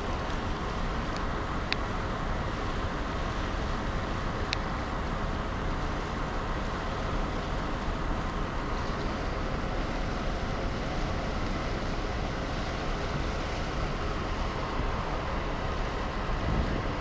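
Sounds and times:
ship moving through water: 0.0s - 17.0s
wind buffeting microphone: 15.4s - 17.0s.

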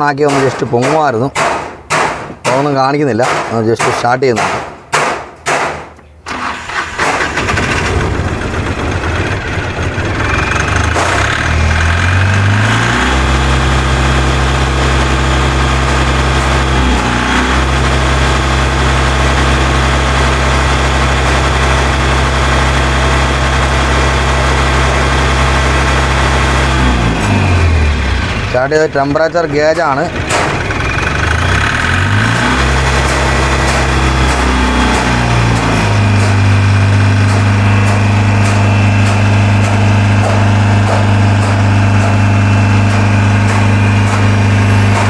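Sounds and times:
diesel engine starting and idling: 6.2s - 45.0s.

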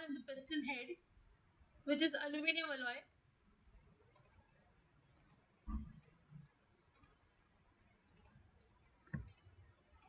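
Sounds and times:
computer mouse clicking: 1.0s - 1.2s, 4.1s - 4.4s, 5.2s - 6.3s, 6.9s - 7.2s, 8.2s - 8.4s, 9.0s - 10.0s.

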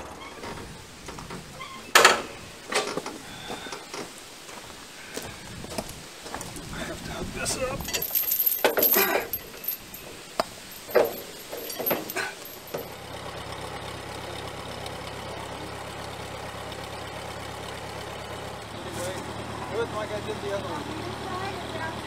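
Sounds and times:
metal clanks: 0.0s - 3.2s, 7.8s - 13.0s
tractor engine idling: 0.0s - 22.0s.

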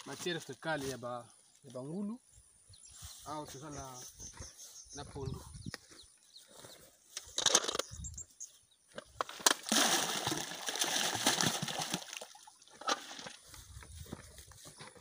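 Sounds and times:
lumps splashing into water: 9.4s - 13.4s.

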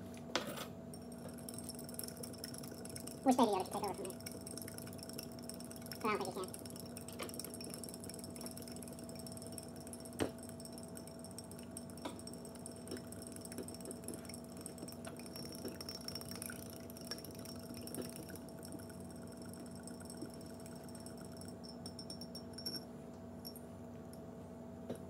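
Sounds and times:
metal spoon clinking against glass: 7.2s - 23.6s.

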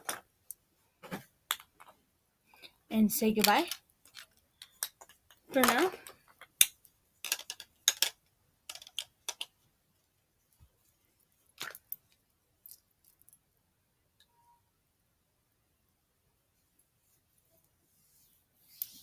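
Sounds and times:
small objects clicking and rustling: 2.6s - 9.6s, 11.4s - 13.4s.

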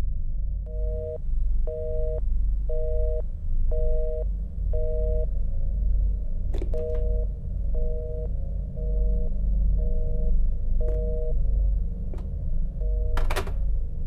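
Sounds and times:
steady low rumble: 0.0s - 14.0s
telephone busy signal beeps: 6.8s - 11.4s.

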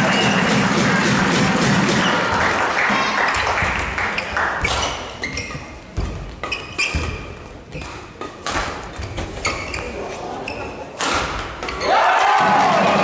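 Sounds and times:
crowd noise in hall: 0.0s - 13.0s
racket hitting shuttlecock: 3.3s - 9.9s, 10.9s - 11.9s
shoes squeaking on court: 3.3s - 11.0s.

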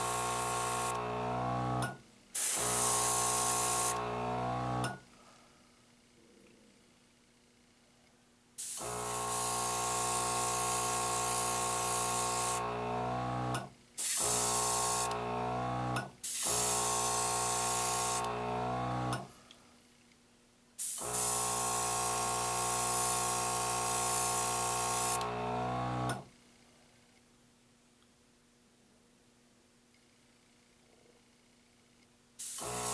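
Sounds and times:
compressor motor humming: 0.0s - 5.0s, 8.8s - 13.6s, 14.2s - 19.3s, 32.6s - 32.9s
airbrush spraying: 2.4s - 4.0s, 8.6s - 12.7s, 32.4s - 32.9s.

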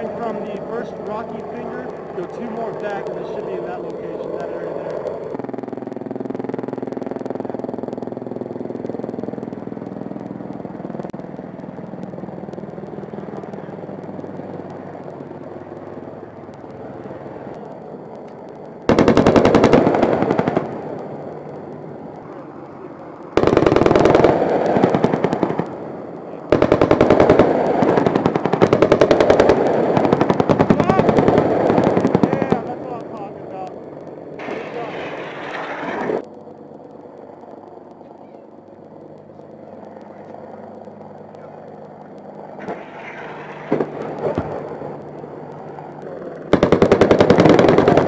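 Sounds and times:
helicopter drone: 0.0s - 48.0s
machine-gun fire bursts: 18.9s - 20.9s, 23.4s - 25.7s, 26.5s - 32.7s, 46.5s - 48.0s.

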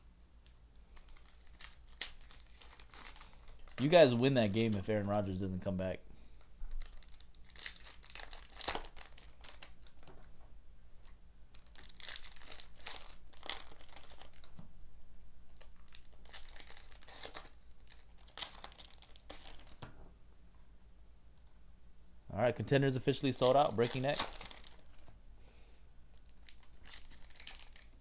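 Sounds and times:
foil wrappers tearing and crinkling: 0.9s - 4.8s, 6.8s - 10.1s, 11.5s - 14.5s, 15.6s - 19.8s, 23.2s - 25.1s, 26.1s - 28.0s.

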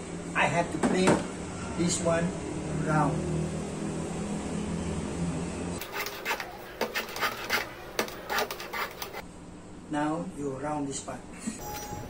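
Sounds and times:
hand plane shaving wood: 5.8s - 9.2s.

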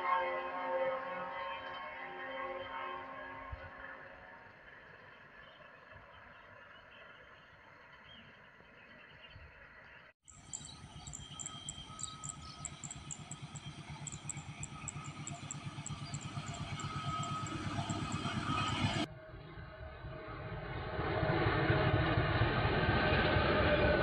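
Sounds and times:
diesel locomotive engine throbbing: 10.3s - 24.0s.

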